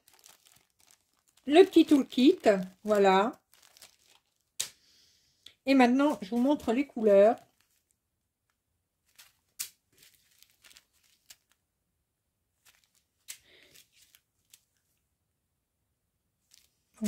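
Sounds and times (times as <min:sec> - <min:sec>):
plastic bags crinkling: 0:00.0 - 0:04.7, 0:05.9 - 0:08.0, 0:09.0 - 0:11.6, 0:12.6 - 0:14.8, 0:16.4 - 0:16.8.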